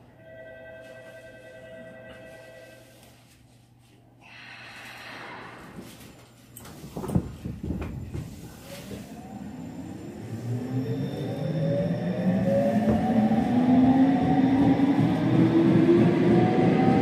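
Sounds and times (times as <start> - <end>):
train knocks: 12.6 - 13.4.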